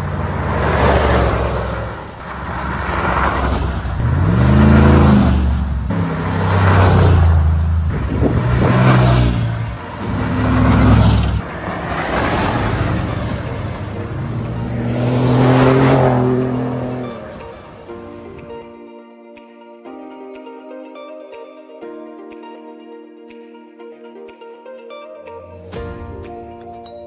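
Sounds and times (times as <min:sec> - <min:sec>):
pickup trucks revving past: 0:00.0 - 0:17.9.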